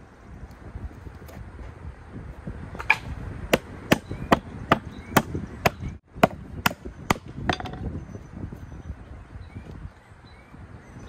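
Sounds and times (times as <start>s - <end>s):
hammer striking wood: 2.9s - 7.8s.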